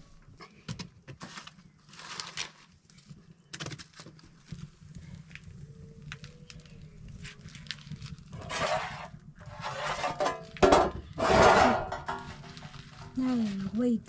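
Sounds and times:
wood fire crackling: 0.0 - 14.0
metal pot lid clanking: 8.4 - 12.6.

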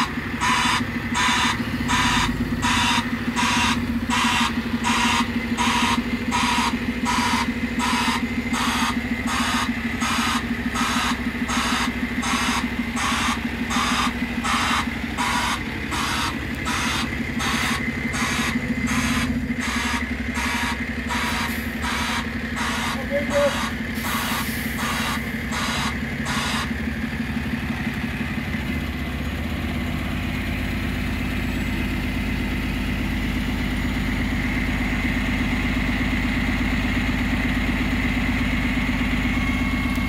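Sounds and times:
warning alarm beeping: 0.0 - 26.9
truck engine and hydraulics humming: 0.0 - 40.0.

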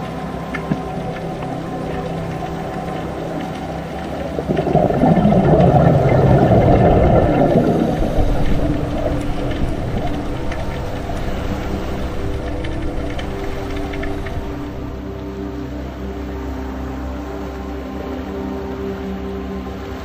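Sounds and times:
waves washing over rocks: 0.0 - 15.0
steady low tones: 0.0 - 18.1.

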